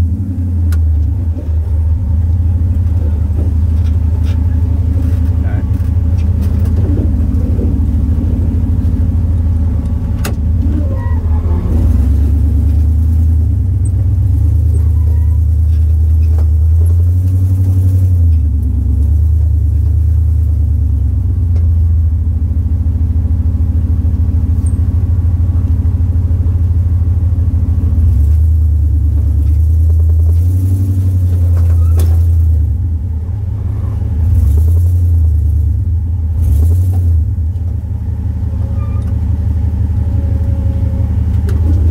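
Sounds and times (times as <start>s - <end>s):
off-road vehicle engine at low revs: 0.0s - 41.9s.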